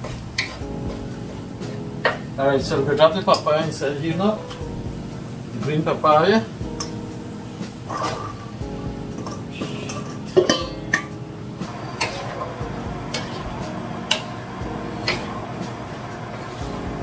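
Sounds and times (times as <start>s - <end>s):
faint steady hum: 0.0s - 17.0s
knocks and scrapes against pan: 7.7s - 11.1s, 11.9s - 12.5s, 13.1s - 13.5s.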